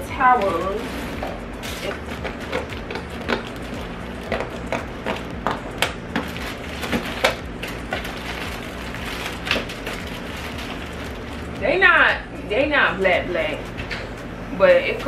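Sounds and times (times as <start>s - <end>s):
plastic wrapping crinkling: 0.3s - 11.6s.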